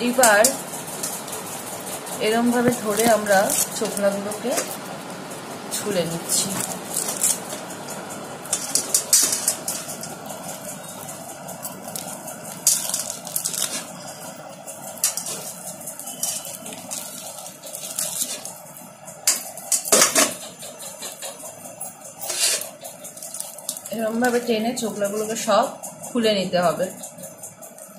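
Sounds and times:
fruit skin tearing: 6.6s - 7.6s.

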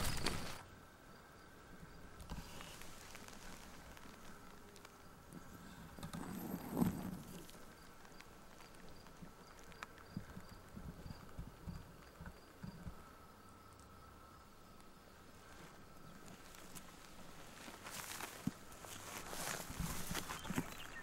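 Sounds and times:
dirt and gravel rushing: 0.0s - 0.7s, 2.2s - 12.1s, 15.3s - 21.0s.

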